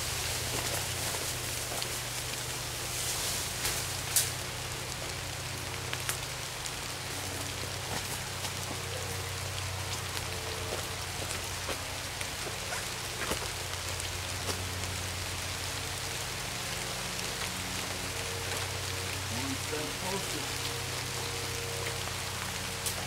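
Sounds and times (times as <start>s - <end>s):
rain falling on leaves: 0.0s - 23.0s
raindrop ticks: 3.6s - 23.0s.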